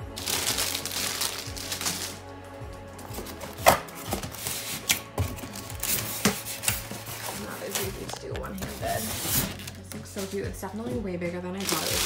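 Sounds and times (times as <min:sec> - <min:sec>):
plastic wrapping crinkling: 0:00.0 - 0:02.2, 0:03.1 - 0:10.4, 0:11.6 - 0:12.0
background music: 0:00.0 - 0:12.0
styrofoam knocking and scraping: 0:03.1 - 0:09.8.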